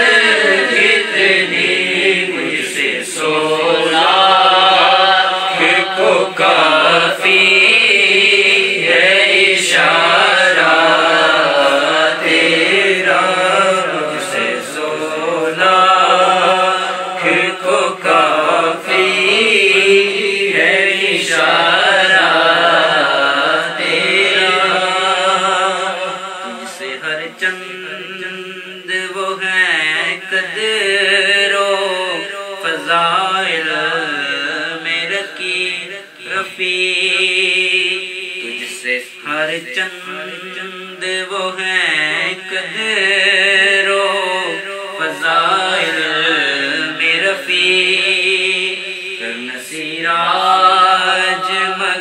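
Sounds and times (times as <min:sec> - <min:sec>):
person singing long wavering notes: 0:26.0 - 0:27.3.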